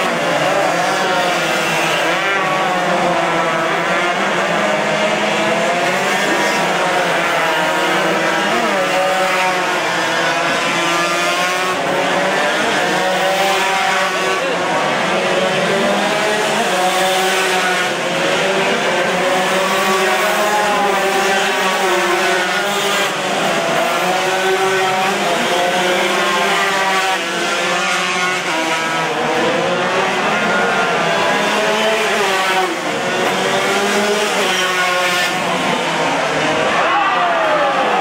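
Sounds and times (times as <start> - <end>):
motorcycle engines revving: 0.0 - 38.0.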